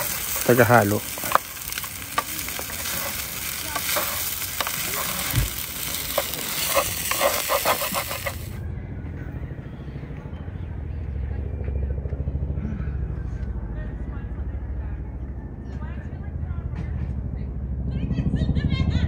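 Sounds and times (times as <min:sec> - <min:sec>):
rice sizzling in a pan: 0:00.0 - 0:08.6
utensil scraping a pan: 0:00.0 - 0:08.6.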